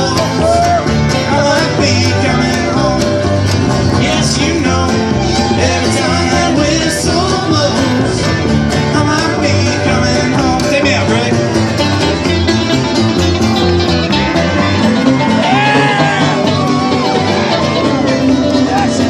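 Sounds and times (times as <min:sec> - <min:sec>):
plucked string instrument: 0:00.0 - 0:19.0
strummed acoustic guitar: 0:00.0 - 0:19.0
upright bass: 0:00.0 - 0:19.0
person singing chorus: 0:03.9 - 0:08.2.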